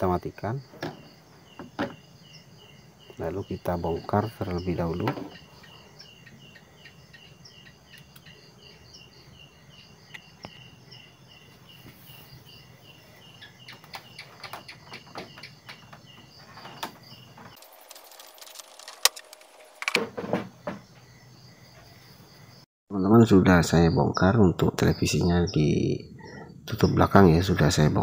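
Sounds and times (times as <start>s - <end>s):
cricket chirping: 0.0s - 28.0s
hands handling plastic cover: 17.6s - 20.0s.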